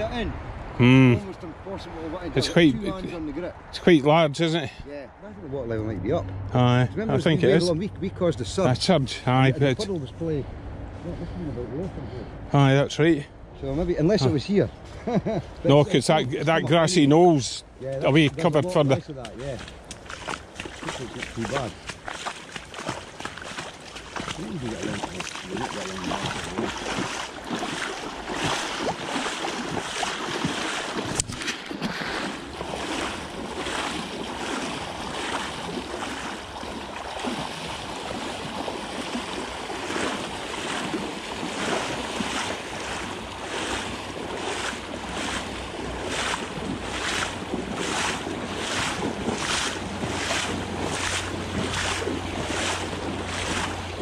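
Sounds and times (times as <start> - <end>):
footsteps wading through water: 14.7 - 54.0.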